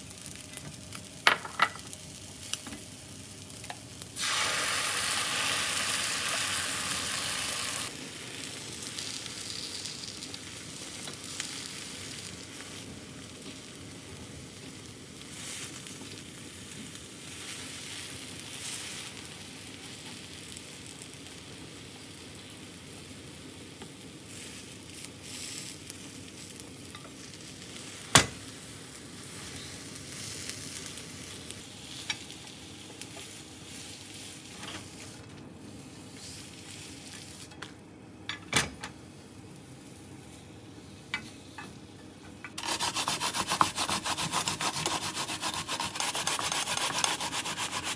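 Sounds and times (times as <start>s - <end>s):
egg sizzling in a hot pan: 0.0s - 23.2s, 42.6s - 47.9s.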